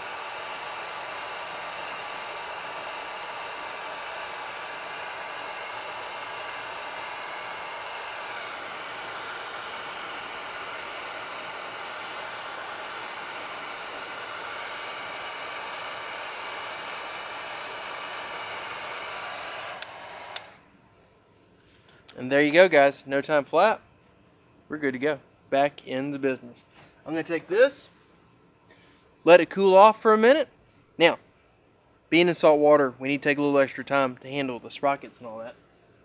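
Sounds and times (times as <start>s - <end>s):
heat gun blowing: 0.0s - 20.7s.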